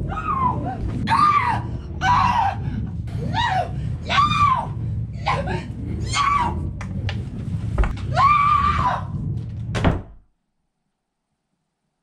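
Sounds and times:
steady low rumble: 0.0 - 10.0
shrill screams: 8.1 - 9.1.

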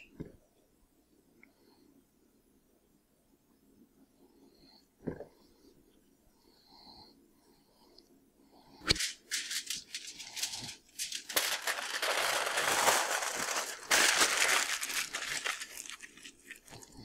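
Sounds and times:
aluminium foil crinkling: 8.9 - 17.0.

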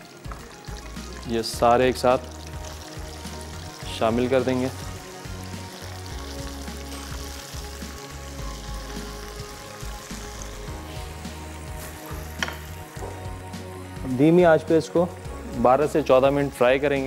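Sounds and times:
chicken deep-frying in hot oil: 0.0 - 13.0
background music: 0.0 - 17.0.

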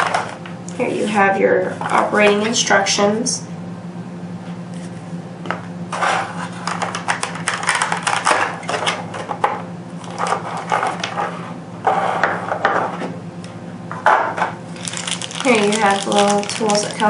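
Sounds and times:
plastic packaging crackling: 6.6 - 8.8, 14.7 - 17.0.

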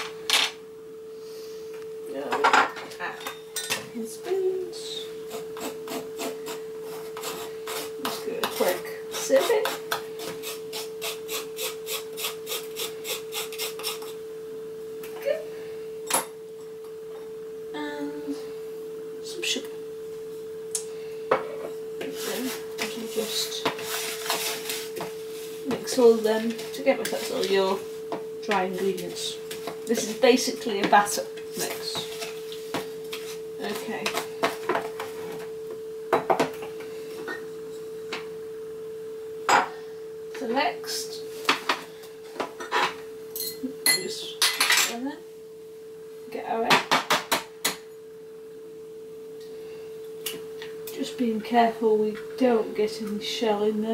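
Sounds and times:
steady high hum: 0.0 - 53.9
spoon scraping flour through sieve: 22.1 - 25.6.

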